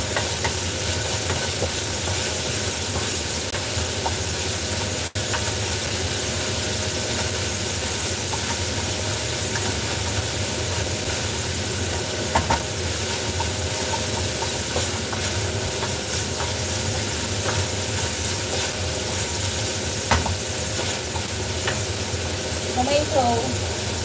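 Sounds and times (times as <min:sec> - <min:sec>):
food sizzling in pan: 0:00.0 - 0:24.0
spatula knocking pan: 0:11.9 - 0:19.3, 0:20.0 - 0:22.0.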